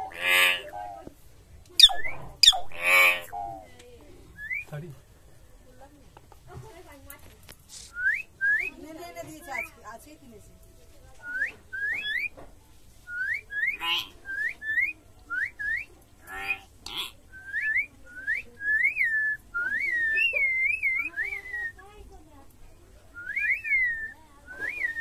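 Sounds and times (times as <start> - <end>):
clear whistling: 7.9 - 8.8, 23.2 - 25.0.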